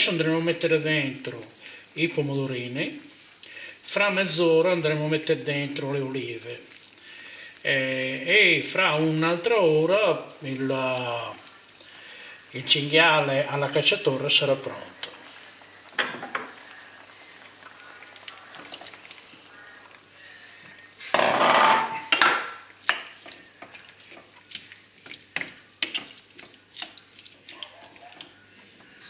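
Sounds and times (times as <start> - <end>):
burst of sizzling: 0.0 - 21.2
stew sizzling in a frying pan: 0.0 - 29.0
wooden spoon scraping a pan: 20.3 - 29.0.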